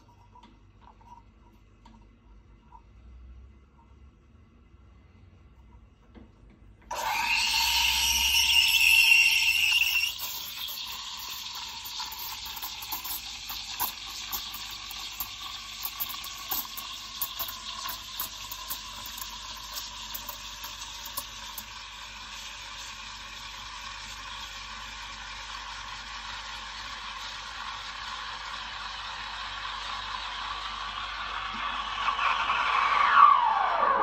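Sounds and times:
steam wand hissing in milk: 0:06.9 - 0:34.0.

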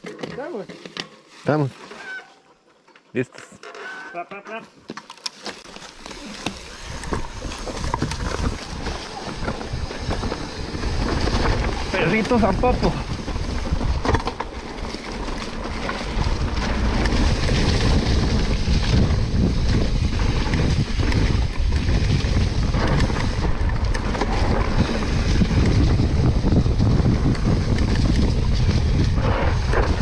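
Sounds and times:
wind rumbling on microphone: 0:06.0 - 0:30.0.

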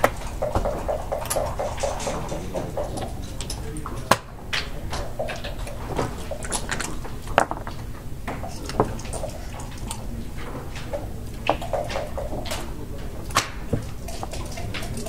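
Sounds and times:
checkers clacking on board: 0:00.0 - 0:15.0
light tapping: 0:00.0 - 0:15.0
room noise: 0:00.0 - 0:15.0.

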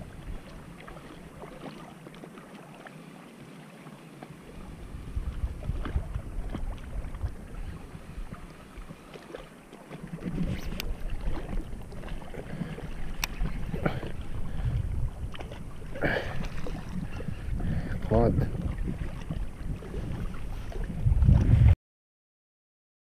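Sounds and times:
wind buffeting microphone: 0:04.5 - 0:08.8, 0:10.1 - 0:21.8.

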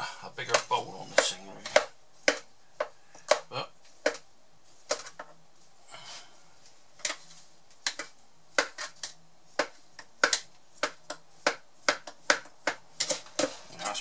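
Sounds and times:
fingers tapping in blender bowl: 0:07.8 - 0:13.5.

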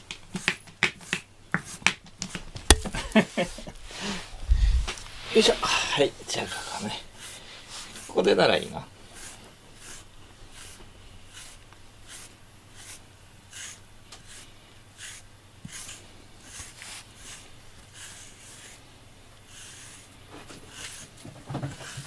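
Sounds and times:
brush strokes through cat fur: 0:05.0 - 0:22.0.

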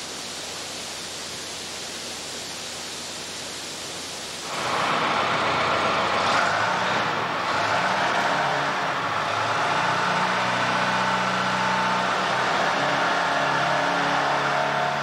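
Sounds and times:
workshop ambience hiss: 0:00.0 - 0:09.5
engine running: 0:04.4 - 0:15.0.

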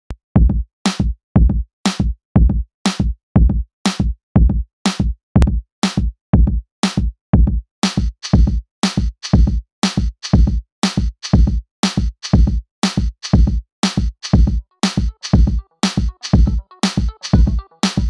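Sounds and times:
electronic music with drum-machine beat: 0:06.9 - 0:18.0.

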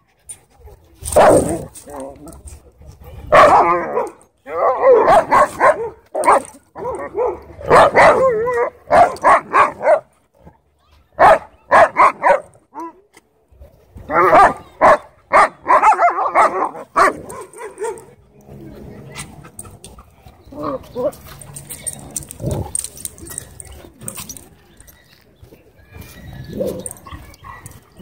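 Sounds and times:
dogs barking and yipping: 0:00.0 - 0:02.1, 0:02.9 - 0:13.0, 0:14.0 - 0:18.3, 0:19.0 - 0:28.0
dogs whine-growling: 0:20.5 - 0:24.2.

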